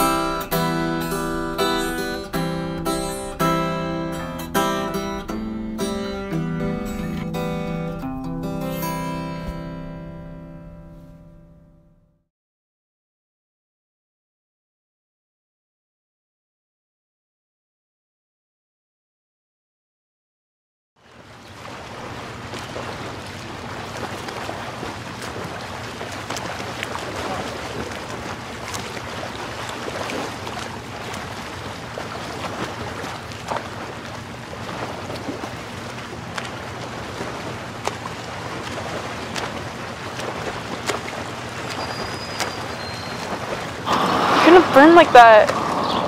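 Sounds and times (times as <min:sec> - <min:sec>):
small waves lapping: 0:00.0 - 0:08.0, 0:21.0 - 0:46.0
low hum: 0:00.0 - 0:12.2
wind on microphone: 0:43.4 - 0:46.0.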